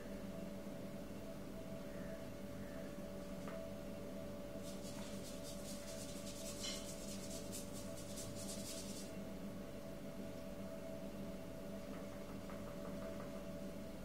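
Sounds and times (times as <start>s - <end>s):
paintbrush stroking paper: 4.6s - 9.1s.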